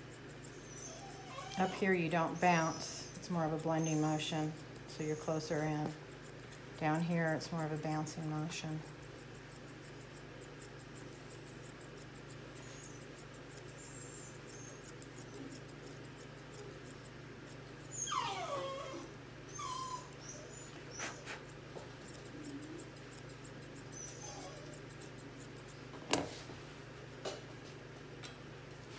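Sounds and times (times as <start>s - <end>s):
shears snipping: 0.0s - 17.9s
puppy whimpering: 0.4s - 6.0s, 17.8s - 21.5s, 22.2s - 23.0s, 23.8s - 25.0s.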